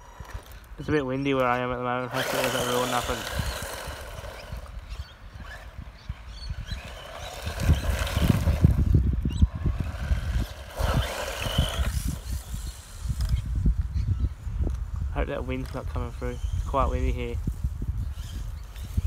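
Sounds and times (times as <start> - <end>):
rc buggy driving on gravel: 0.0 - 13.5
wind buffeting microphone: 0.0 - 19.0.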